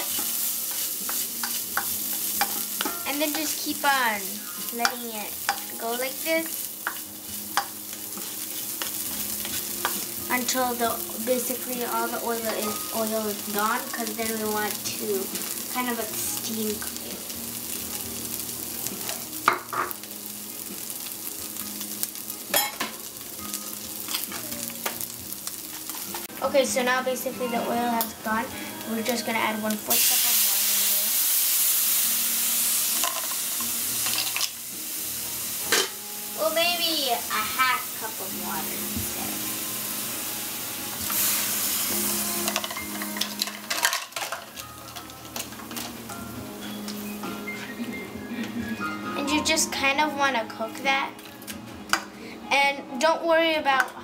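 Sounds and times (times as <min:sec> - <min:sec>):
spoon scraping a pan: 0:00.0 - 0:03.6, 0:04.6 - 0:10.2
beans sizzling in oil: 0:00.0 - 0:53.1.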